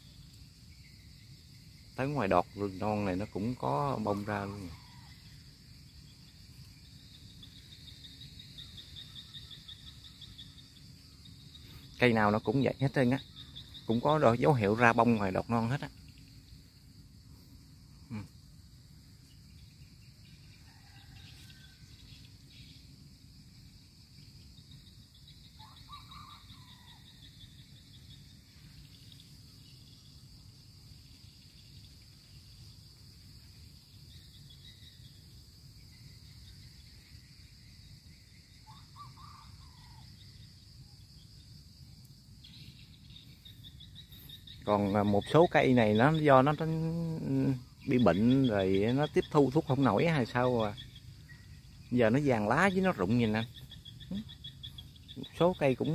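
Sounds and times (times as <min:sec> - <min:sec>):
insects chirring: 0:00.0 - 0:55.9.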